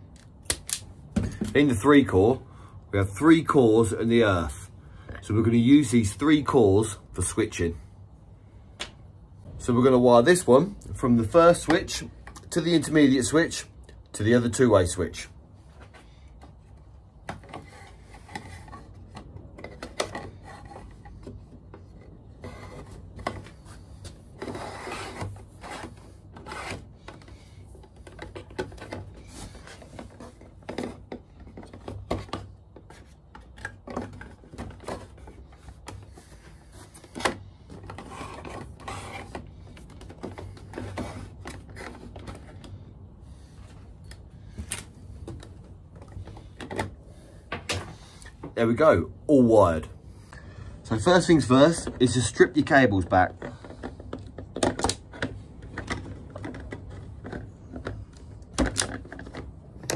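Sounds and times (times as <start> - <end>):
cable scraping through plastic boxes: 17.4 - 43.8, 50.9 - 59.9.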